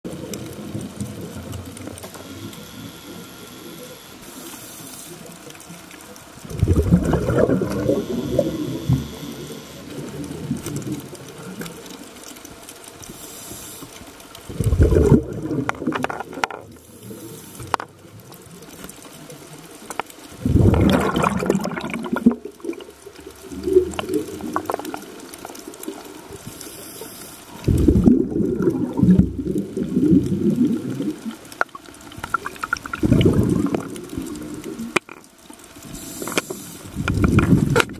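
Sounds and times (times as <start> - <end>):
low water surges: 0.1 - 37.9
water rushing underwater: 0.1 - 37.9.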